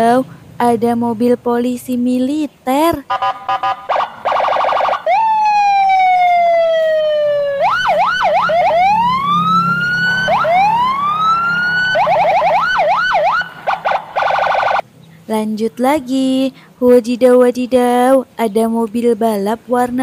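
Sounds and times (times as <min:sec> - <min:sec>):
toy electronic siren: 0:03.1 - 0:14.8.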